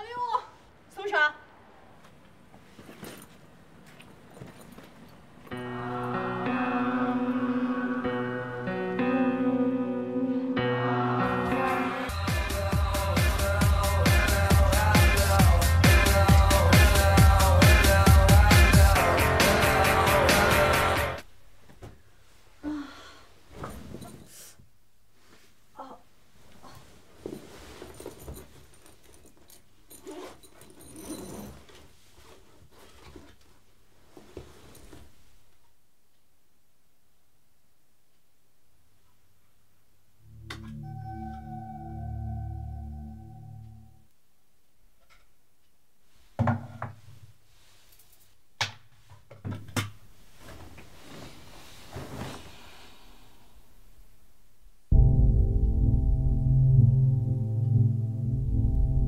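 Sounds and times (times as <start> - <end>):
bedding and clothes rustling: 1.9 - 5.6, 21.5 - 35.8, 47.0 - 53.4
fabric backpack rustling: 26.5 - 35.1, 50.3 - 52.6.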